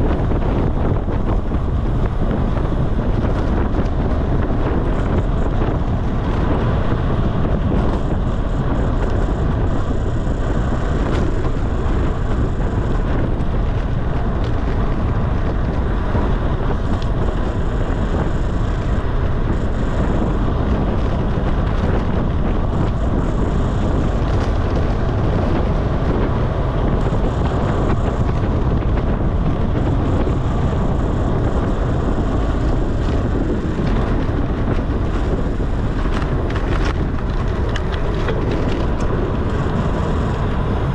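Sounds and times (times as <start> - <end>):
rolling road noise: 0.0 - 40.9
wind buffeting microphone: 0.0 - 40.9.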